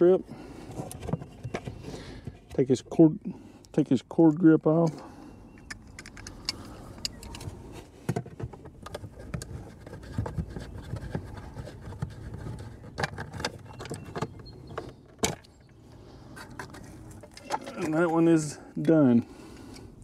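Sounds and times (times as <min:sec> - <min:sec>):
pliers clicking and scraping: 0:05.6 - 0:07.6.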